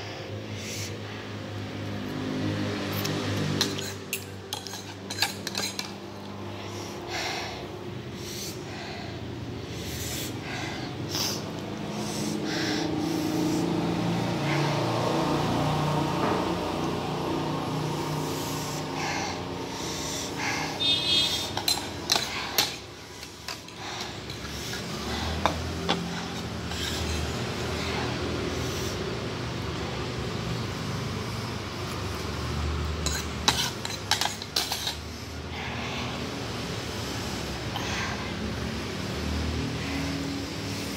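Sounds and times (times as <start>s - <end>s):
person sniffing and breathing sharply: 0.0s - 40.9s
utensils clinking against ceramic bowl: 3.5s - 6.4s, 21.4s - 27.2s, 33.0s - 35.1s.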